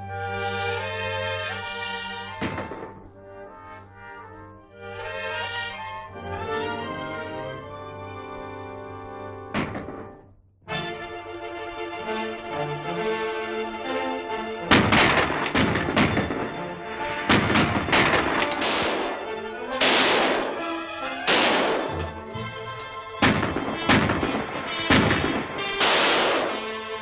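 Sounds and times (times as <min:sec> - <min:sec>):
orchestral music: 0:00.0 - 0:27.0
gunshots: 0:02.4 - 0:03.1, 0:09.5 - 0:10.3, 0:14.7 - 0:22.4, 0:23.2 - 0:27.0.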